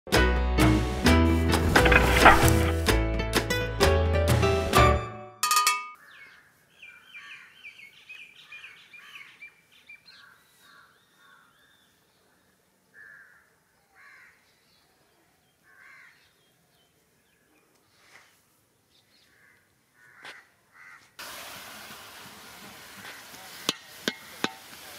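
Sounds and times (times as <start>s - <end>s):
bird chirps: 5.9s - 12.0s
bird caws: 6.0s - 9.4s, 10.1s - 11.7s, 12.9s - 14.5s, 15.6s - 16.3s, 19.2s - 21.2s.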